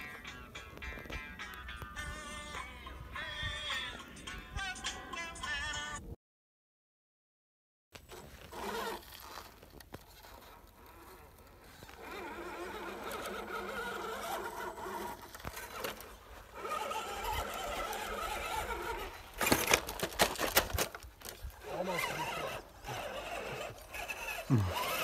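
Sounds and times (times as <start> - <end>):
rc truck motor whining: 8.0 - 25.0.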